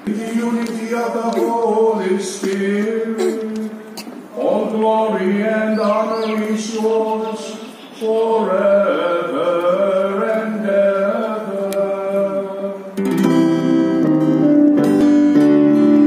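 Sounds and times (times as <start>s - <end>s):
person singing: 0.0s - 14.0s
acoustic guitar strumming: 5.0s - 16.0s.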